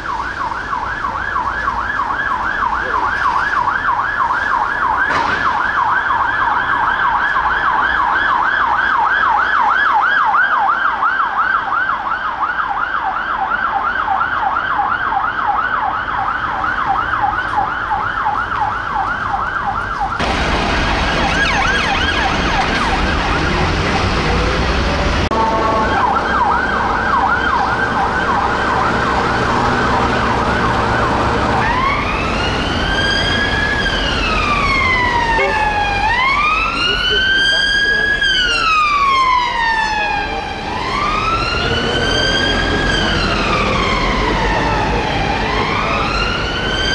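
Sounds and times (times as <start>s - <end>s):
police siren yelp: 0.0s - 24.6s, 25.2s - 46.9s
rising and falling siren wail: 0.0s - 46.9s
car engine noise: 16.0s - 46.9s.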